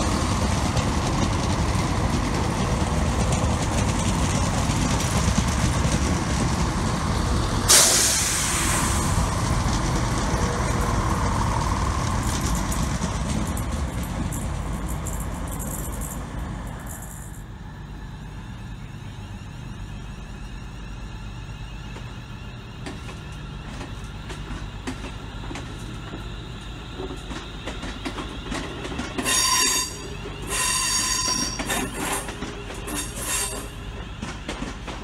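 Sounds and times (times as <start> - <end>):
train rumbling: 0.0 - 35.0
wheels clicking over rail joints: 9.5 - 17.4, 22.8 - 35.0
high-pitched wheel squeal: 29.2 - 33.8.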